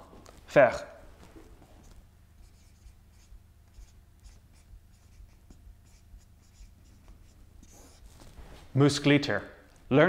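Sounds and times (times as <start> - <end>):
marker squeaking on whiteboard: 1.6 - 8.3.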